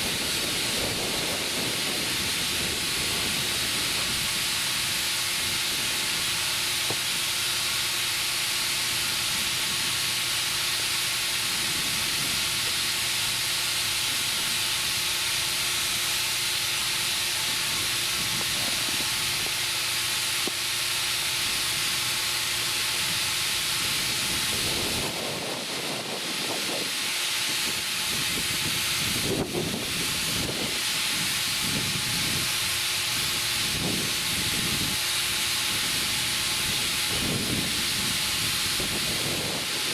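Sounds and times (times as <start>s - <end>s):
compressed air hissing: 0.0s - 39.9s.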